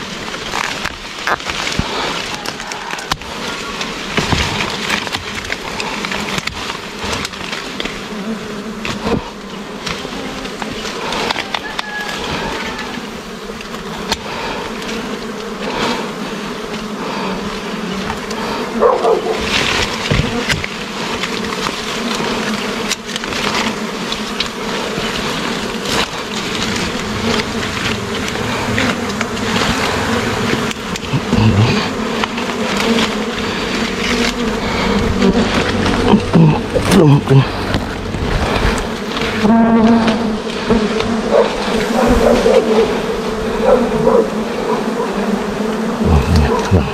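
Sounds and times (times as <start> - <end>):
bees buzzing: 0.0 - 46.9
knocks and rustles: 3.8 - 8.0, 19.3 - 33.3.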